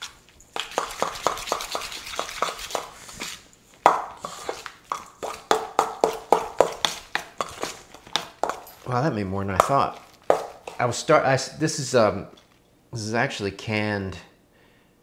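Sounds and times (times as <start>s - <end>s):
utensil scraping metal bowl: 0.0s - 3.4s, 4.2s - 8.9s, 9.6s - 11.0s.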